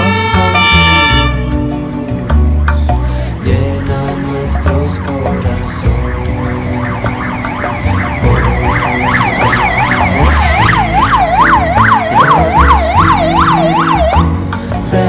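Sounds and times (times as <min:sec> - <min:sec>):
siren yelping: 0:03.4 - 0:14.4.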